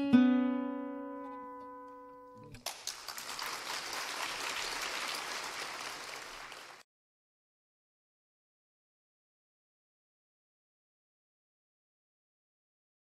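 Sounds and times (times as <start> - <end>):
acoustic guitar chord ringing: 0.0 - 2.6
audience applause: 2.6 - 6.9.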